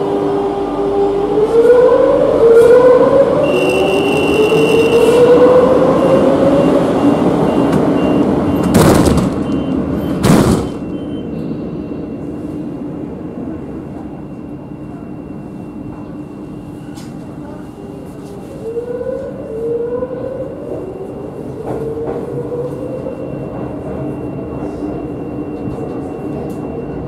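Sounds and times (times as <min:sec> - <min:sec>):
electric train whine: 0:00.0 - 0:27.0
train interior hum: 0:00.0 - 0:27.0
high warning beep: 0:06.0 - 0:12.4.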